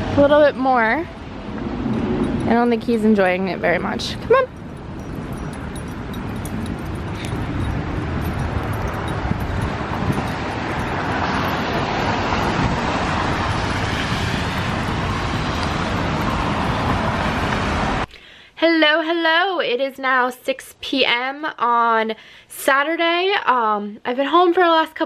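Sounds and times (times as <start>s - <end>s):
road traffic noise: 0.0s - 18.2s.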